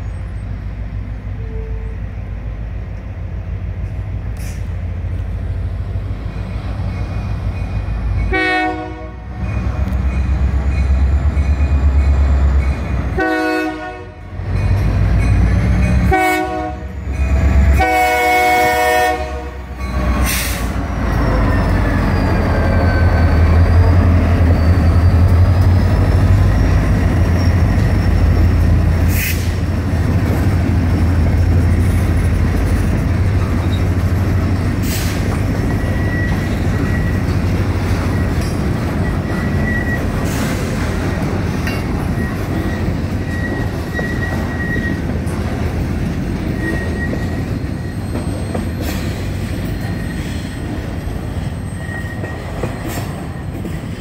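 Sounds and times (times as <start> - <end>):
locomotive diesel engine rumbling: 0.0 - 54.0
locomotive air horn blasts: 1.4 - 2.0, 8.3 - 9.3, 13.1 - 14.3, 16.0 - 17.0, 17.7 - 20.6
freight cars rolling: 19.7 - 54.0
rail car knocks: 30.0 - 50.0, 52.2 - 54.0
thin wheel squeal: 46.5 - 49.0, 51.5 - 53.1.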